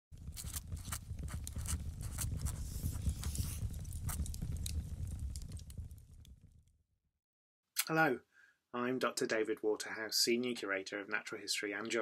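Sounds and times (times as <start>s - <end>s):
irregular crackles and crunches: 0.1s - 6.8s
low rumble: 0.2s - 6.9s.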